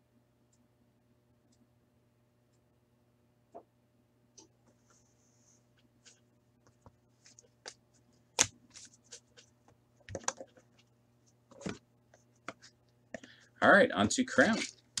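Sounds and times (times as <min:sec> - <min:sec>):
faint steady hum: 0:00.0 - 0:15.0
cards clicking and tapping: 0:06.8 - 0:10.8.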